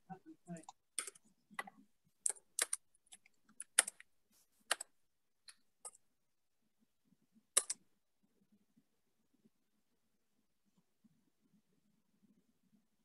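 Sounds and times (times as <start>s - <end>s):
computer mouse clicks: 0.6s - 4.1s, 4.7s - 4.9s, 7.6s - 7.8s.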